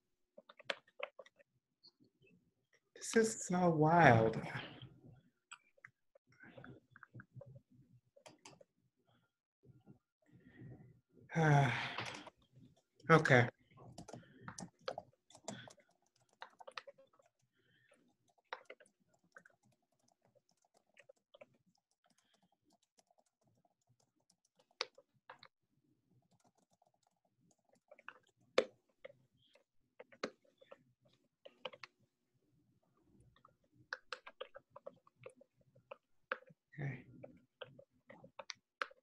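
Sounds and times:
keyboard typing: 11.9 - 25.5, 26.2 - 31.9, 33.4 - 36.6.

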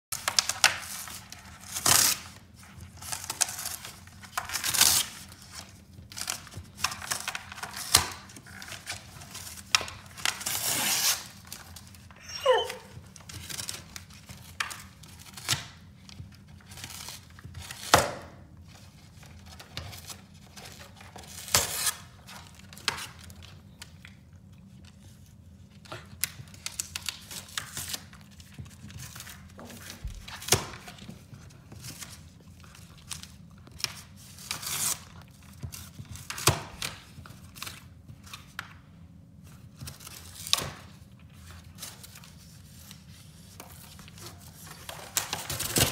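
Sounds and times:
dog ripping cardboard: 0.2 - 15.8, 19.2 - 23.3, 25.8 - 37.8, 43.6 - 45.9.

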